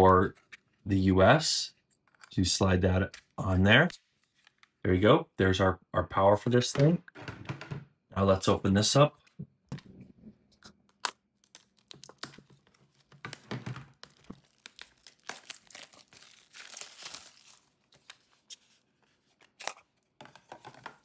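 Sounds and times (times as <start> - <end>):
plastic wrap crinkling and tearing: 11.4 - 18.5.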